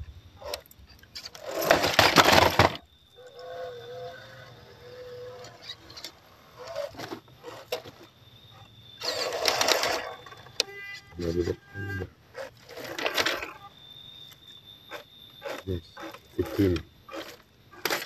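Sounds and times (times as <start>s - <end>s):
faint electric motor whine: 0.0s - 18.0s
scraping over rock and leaves: 1.3s - 2.8s.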